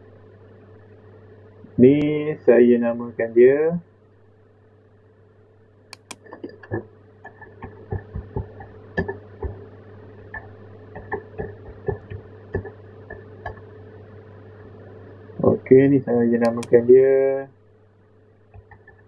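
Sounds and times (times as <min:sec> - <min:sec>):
low electrical hum: 0:00.0 - 0:19.0
mouse clicks: 0:05.9 - 0:06.3, 0:16.4 - 0:16.8
keyboard typing: 0:06.0 - 0:06.3, 0:16.5 - 0:16.8.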